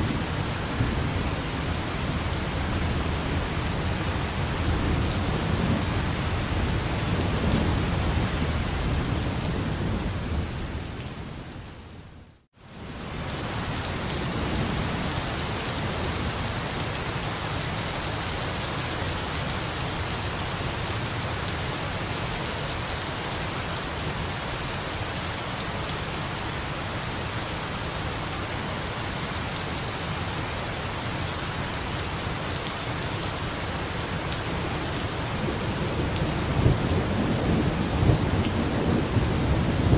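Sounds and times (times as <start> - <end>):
low rumble of thunder: 0.0 - 11.5, 35.4 - 39.9
heavy rain: 0.0 - 39.9.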